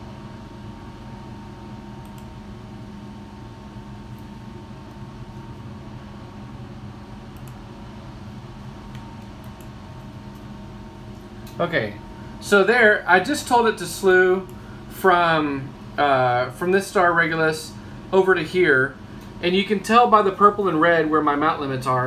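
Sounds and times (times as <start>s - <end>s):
steady mechanical hum: 0.0s - 22.0s
faint clicks: 7.3s - 7.6s.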